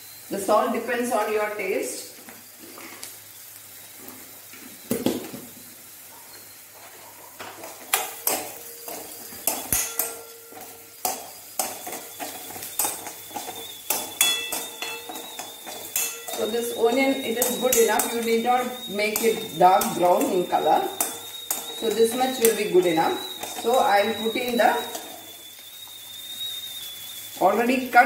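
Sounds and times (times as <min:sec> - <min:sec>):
onions sizzling in oil: 0:00.0 - 0:28.0
spoon scraping metal pan: 0:06.8 - 0:25.4.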